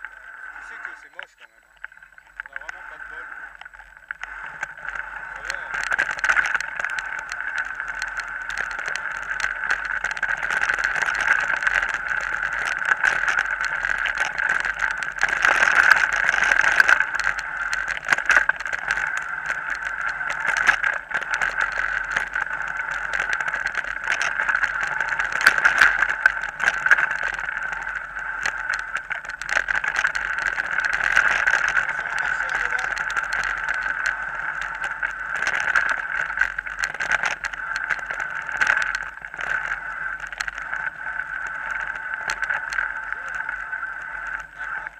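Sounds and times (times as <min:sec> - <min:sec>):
mountain bike rushing noise: 0:02.0 - 0:44.9.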